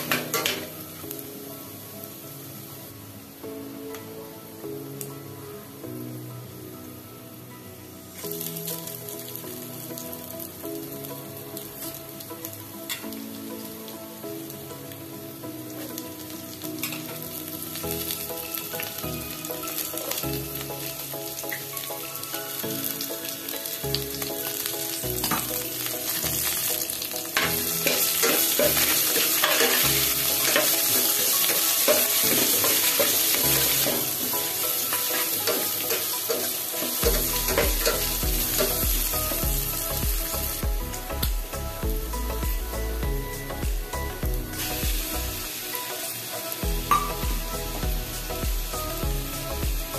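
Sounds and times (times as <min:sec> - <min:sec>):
food sizzling in hot oil: 0:00.0 - 0:03.8, 0:08.0 - 0:49.9
spatula scraping pan: 0:27.4 - 0:34.2.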